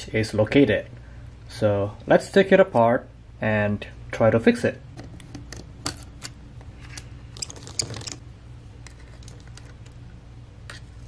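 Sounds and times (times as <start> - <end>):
small tools and parts clicking: 5.5 - 8.2.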